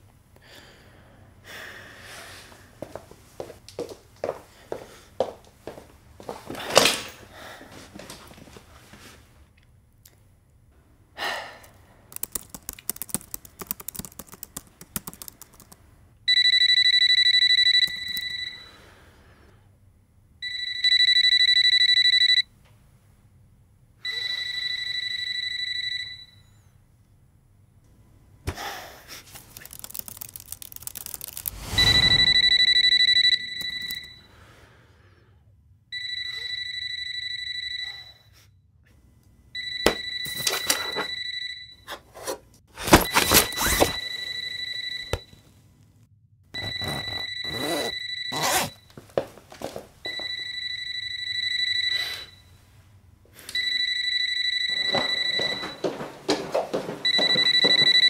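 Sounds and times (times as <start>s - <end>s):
laptop key clicks: 12.1s - 15.8s
telephone warbling ring: 31.4s - 34.3s, 46.6s - 48.8s.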